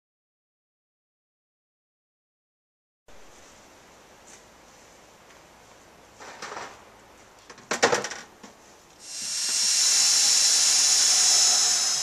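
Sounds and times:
small motor whining: 9.0 - 12.0.

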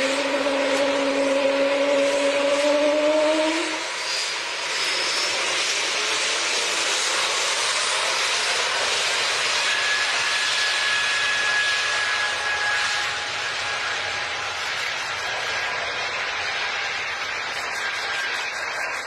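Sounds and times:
thin high whine: 0.0 - 6.4, 7.0 - 19.0
jet engines rushing: 0.0 - 19.0.

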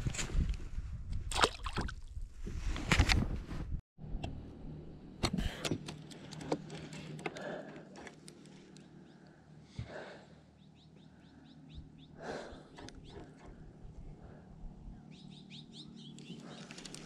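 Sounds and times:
birds chirping: 8.4 - 17.0.

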